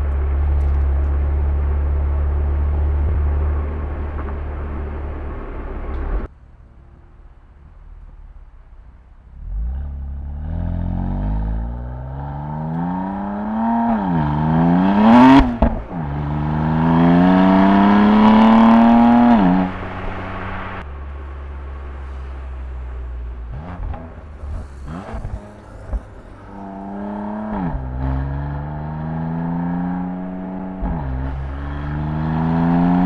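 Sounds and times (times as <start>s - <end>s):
car engine accelerating hard: 0.0s - 6.3s, 9.4s - 33.0s
sharp exhaust crack: 14.2s - 29.4s.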